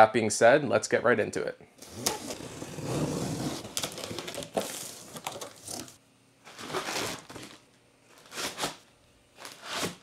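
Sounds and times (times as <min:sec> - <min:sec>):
plastic packaging crinkling: 0:03.6 - 0:08.8
knife slitting packing tape: 0:08.2 - 0:08.8, 0:09.5 - 0:10.0.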